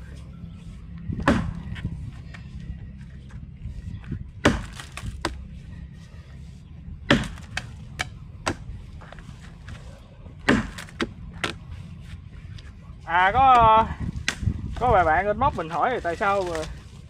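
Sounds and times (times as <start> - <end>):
axe chopping into log: 1.2 - 1.6, 4.4 - 5.4, 7.1 - 8.7, 10.4 - 11.6, 14.2 - 14.5.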